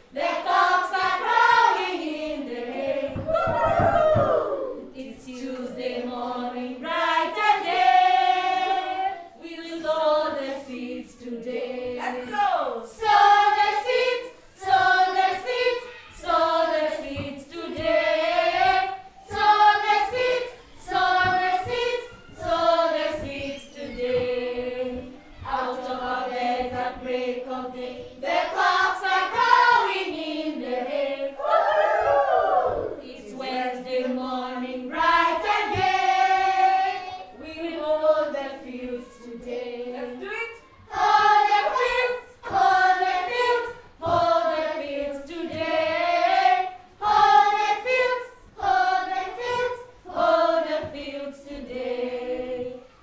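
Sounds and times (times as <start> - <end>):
young children singing: 0.0 - 53.0.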